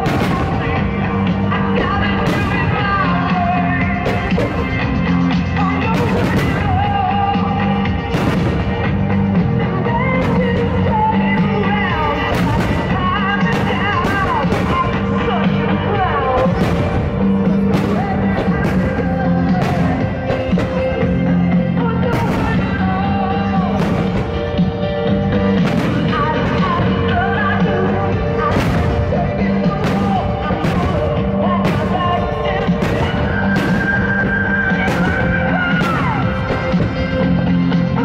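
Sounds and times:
fireworks bursting: 0.0 - 7.1, 8.0 - 27.6, 28.4 - 37.8
rock song with singing: 0.0 - 38.0.

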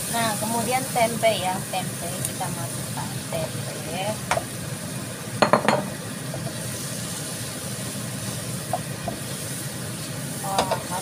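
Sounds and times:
frying pan sizzling: 0.0 - 11.0
spatula knocking on pan: 5.4 - 5.9, 10.6 - 10.9.

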